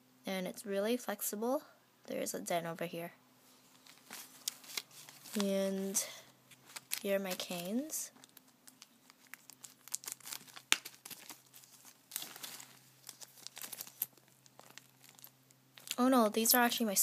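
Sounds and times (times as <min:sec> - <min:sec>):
plastic bag crinkling: 0:03.7 - 0:16.0.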